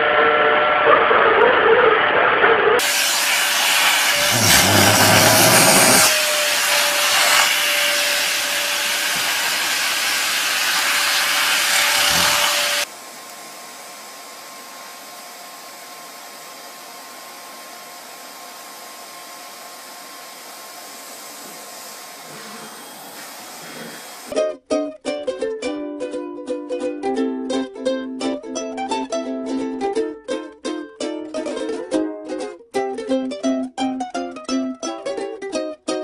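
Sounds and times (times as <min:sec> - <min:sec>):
vacuum cleaner running: 0:00.0 - 0:24.3.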